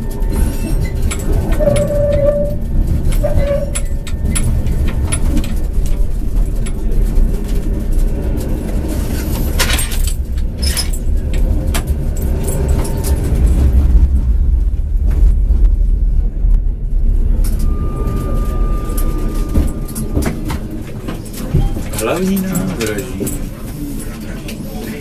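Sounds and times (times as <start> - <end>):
tram rumbling: 0.0 - 25.0
wheel and body rattles: 0.0 - 25.0
steady high warning tone: 16.2 - 23.4.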